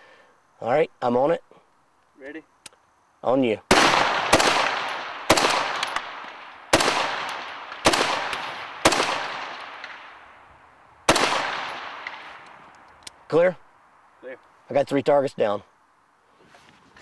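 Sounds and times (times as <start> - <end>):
rifle shots echoing: 3.7 - 10.4, 11.0 - 12.6.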